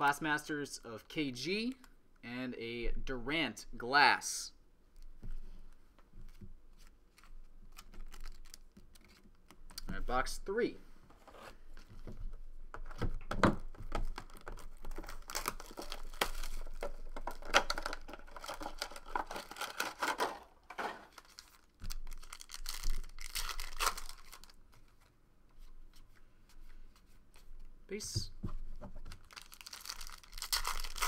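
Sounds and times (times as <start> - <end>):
card packs rustling: 6.8 - 9.5, 13.6 - 25.1, 29.1 - 31.0
plastic shrink-wrap tearing: 7.7 - 9.3, 13.9 - 24.6, 29.2 - 31.0.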